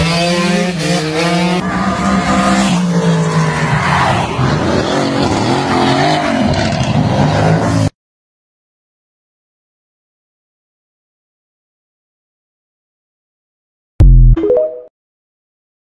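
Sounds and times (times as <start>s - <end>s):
engines revving hard: 0.0s - 7.9s.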